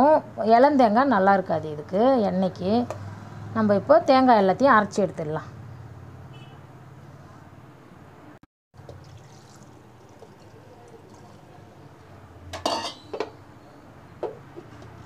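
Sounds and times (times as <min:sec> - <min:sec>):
water poured onto coconut: 0:08.8 - 0:11.6
steel vessels clinking and knocking: 0:12.6 - 0:13.4.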